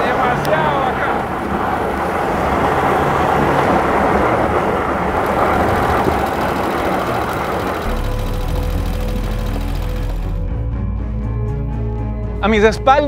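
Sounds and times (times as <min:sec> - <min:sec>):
pickup truck engine and tyres rumbling: 0:00.0 - 0:10.4.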